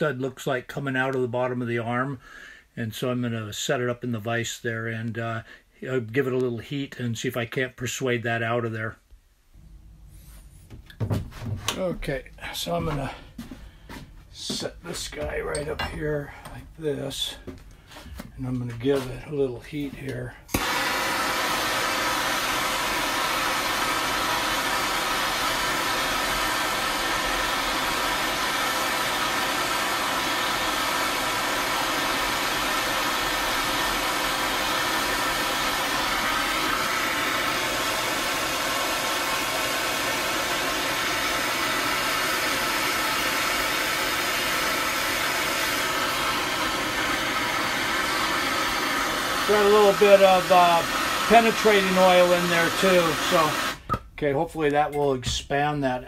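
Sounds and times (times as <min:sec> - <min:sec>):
gas torch hissing: 0:20.1 - 0:53.9.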